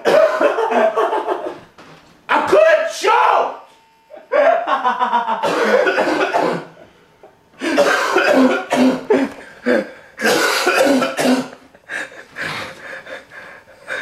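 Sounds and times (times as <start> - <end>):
man coughing hard: 0.0 - 1.6, 5.4 - 6.9, 7.6 - 12.7.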